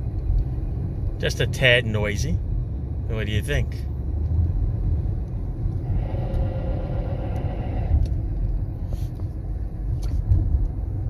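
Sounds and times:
road rumble inside car: 0.0s - 11.0s
brakes grinding: 3.2s - 11.0s.

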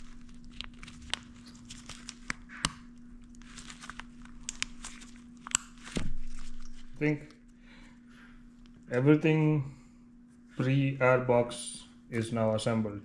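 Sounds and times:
gloved hands rustling wiring: 0.0s - 7.2s.

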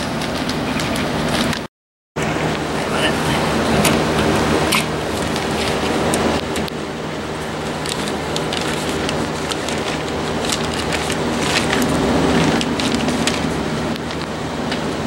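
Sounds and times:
steady low hum: 0.0s - 15.0s
plastic sheeting crinkling: 3.1s - 15.0s.

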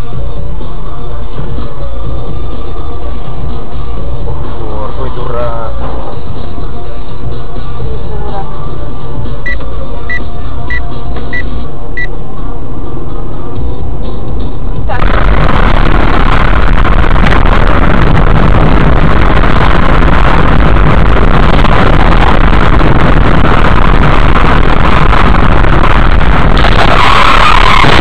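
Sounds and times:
car engine and road noise: 0.0s - 28.0s.

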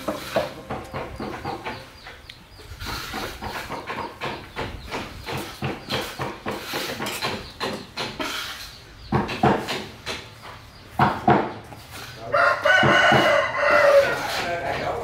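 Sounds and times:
scattered knocks: 0.0s - 2.2s, 3.1s - 8.3s, 9.1s - 11.6s
rooster crowing: 12.3s - 14.5s.

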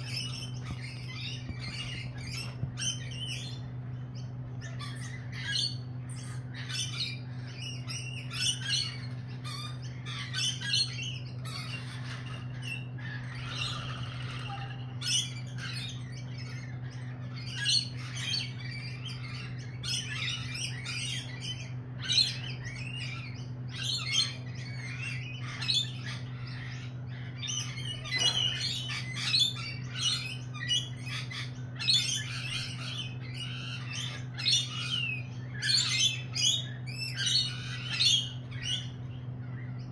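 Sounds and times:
lorikeets chattering and squawking: 0.0s - 39.9s
steady low hum: 0.0s - 39.9s.

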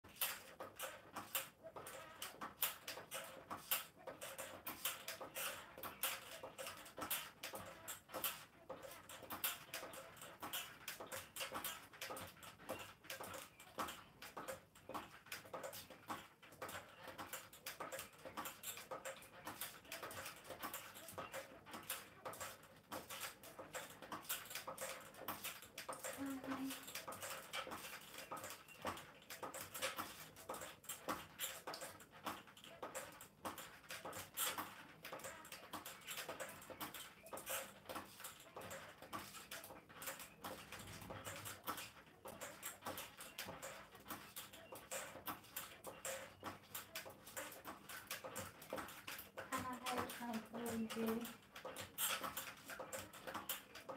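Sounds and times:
stepper pedals squeaking and clicking: 0.1s - 53.9s.

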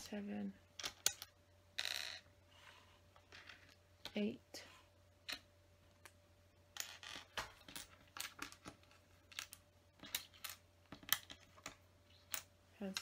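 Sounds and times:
plastic pieces clicking: 6.8s - 13.0s.

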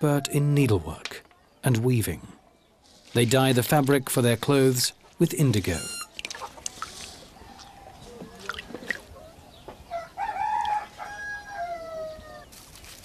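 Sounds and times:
rooster crowing: 9.9s - 12.5s.

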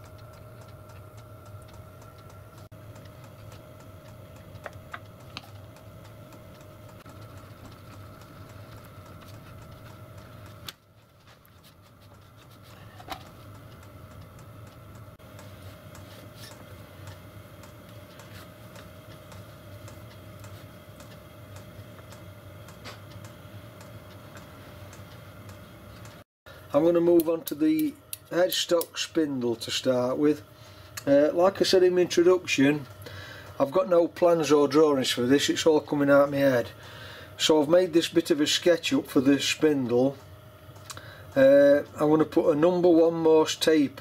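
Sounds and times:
steady background hum: 0.0s - 44.0s.

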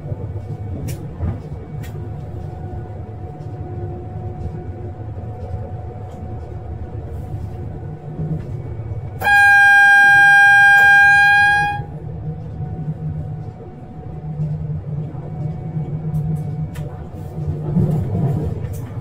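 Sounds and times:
train rumbling: 0.0s - 19.0s
train horn blast: 9.1s - 12.0s.

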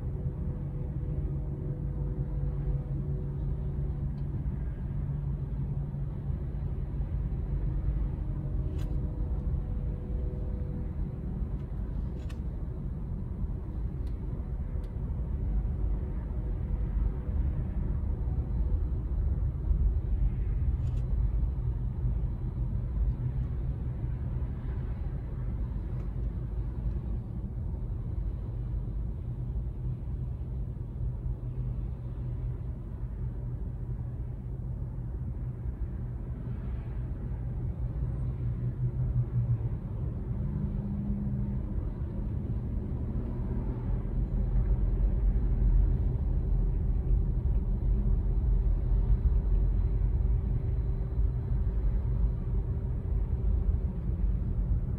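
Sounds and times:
car engine rumble and road noise: 0.0s - 54.9s
faint steady hum: 0.0s - 54.9s.

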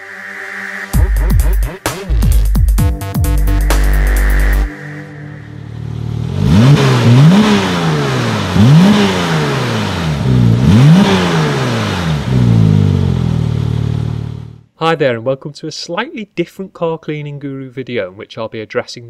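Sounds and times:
sports car engine idling and revving: 5.6s - 14.7s.

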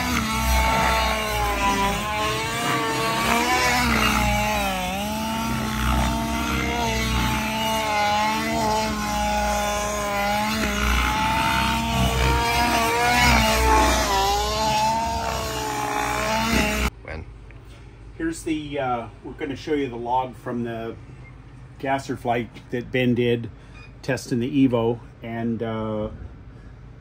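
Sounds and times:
rc helicopter engine running hard: 0.0s - 16.9s.

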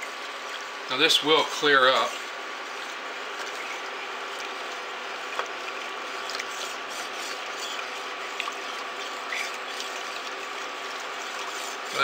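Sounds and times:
spatula scraping gritty pot: 11.2s - 12.0s.

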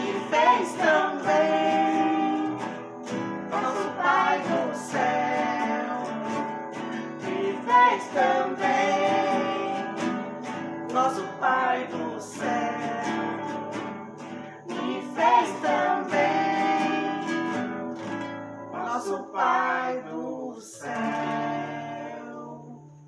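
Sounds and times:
woman singing: 0.0s - 2.9s, 3.5s - 6.6s, 7.2s - 10.2s, 10.9s - 13.8s, 14.7s - 17.6s
strummed classical guitars: 0.0s - 23.0s.

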